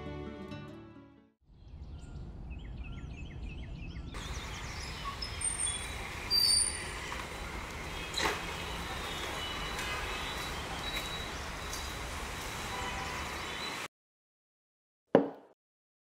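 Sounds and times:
birds chirping: 1.6 - 13.9
street noise: 4.0 - 13.9
sharp knock: 15.2 - 15.5.

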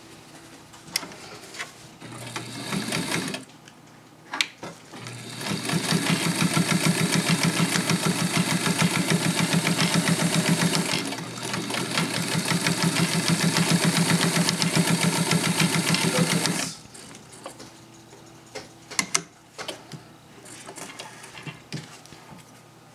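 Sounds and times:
sewing machine stitching: 2.0 - 3.5, 5.0 - 16.8.

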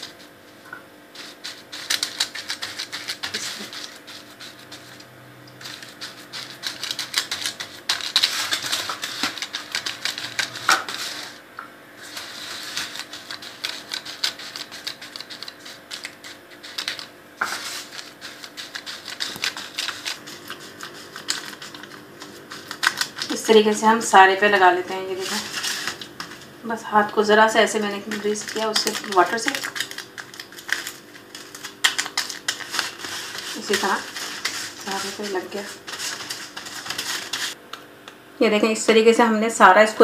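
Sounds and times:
hand patting crumbs in foil pan: 1.2 - 11.4, 12.0 - 26.5, 27.5 - 37.6.

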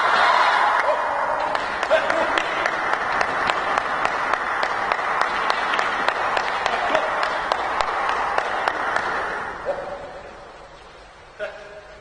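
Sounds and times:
crowd applauding: 0.0 - 10.6
sharp individual claps: 0.6 - 10.4.

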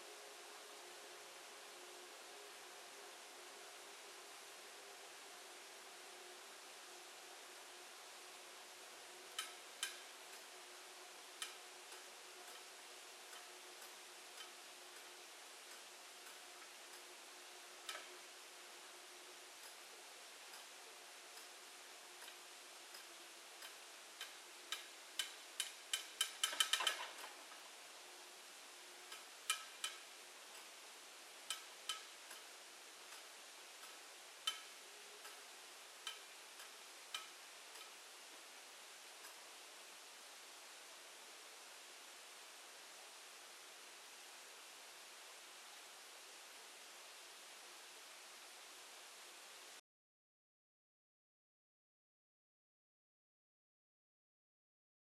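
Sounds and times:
quiet steady hiss: 0.0 - 49.8
faint sharp ticks: 9.3 - 10.5, 11.4 - 17.1, 17.8 - 18.3, 19.6 - 19.9, 20.5 - 21.6, 22.2 - 27.6, 29.1 - 30.8, 31.4 - 38.0.

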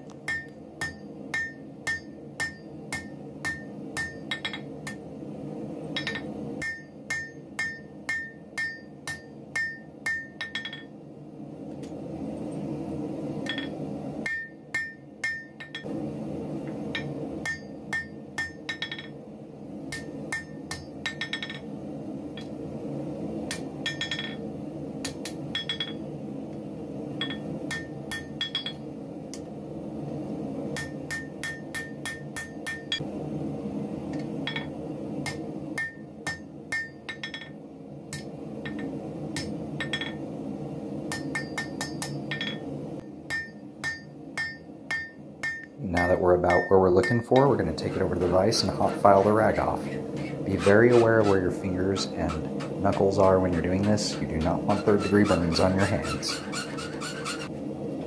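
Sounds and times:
hammer ringing on anvil: 0.3 - 5.0, 6.0 - 10.9, 13.4 - 15.9, 16.9 - 19.2, 19.9 - 21.7, 23.5 - 24.4, 25.5 - 26.0, 27.2 - 28.8, 30.8 - 33.0, 34.4 - 34.7, 35.3 - 37.6, 38.2 - 40.2, 41.1 - 42.7, 43.3 - 47.6.

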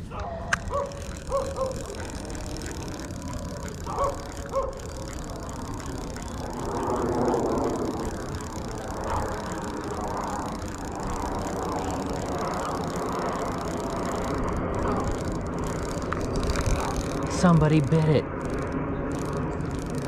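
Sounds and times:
fishing reel whirring: 0.0 - 20.0
dog yipping: 0.1 - 2.1, 3.8 - 4.8.

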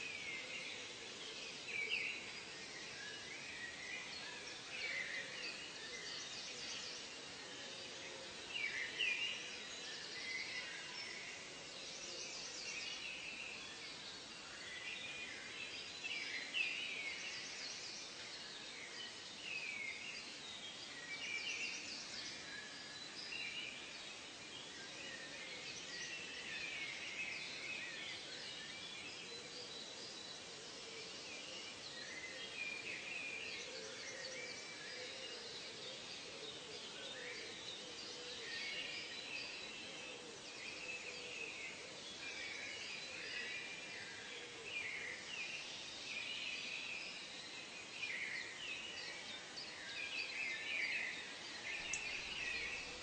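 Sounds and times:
faint forest ambience hiss: 0.0 - 53.0
birds chirping and singing: 19.0 - 53.0.

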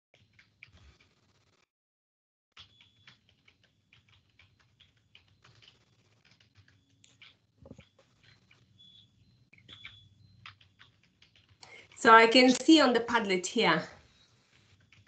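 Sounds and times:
computer keyboard typing: 2.6 - 8.7, 9.5 - 13.5.

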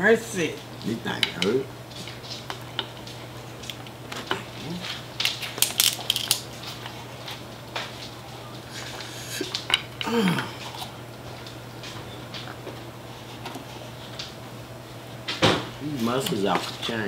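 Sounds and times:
seafood shells cracking: 2.0 - 8.1.

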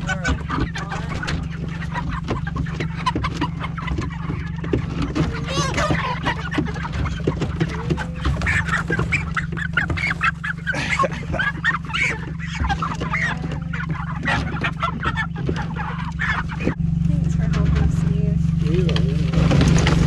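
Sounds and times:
chickens squawking and clucking: 0.0 - 20.0
low steady hum: 0.0 - 20.0
knocks and rustles: 0.3 - 10.5, 17.4 - 20.0.

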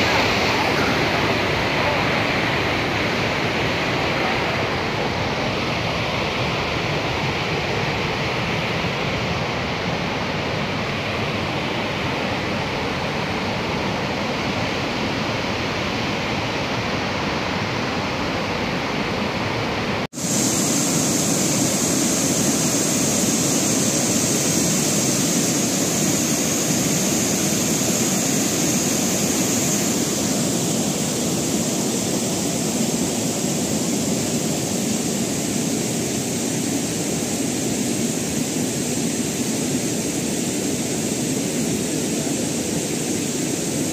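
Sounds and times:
floodwater rushing: 0.0 - 16.5.

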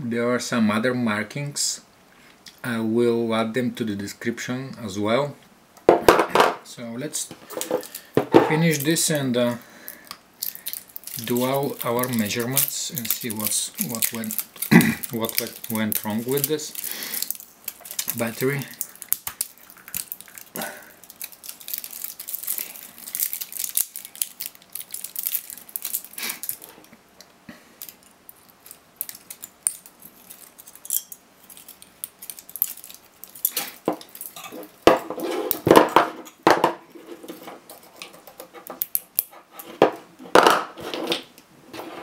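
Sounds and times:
insulation paper crinkling: 7.4 - 26.9, 27.8 - 35.7.

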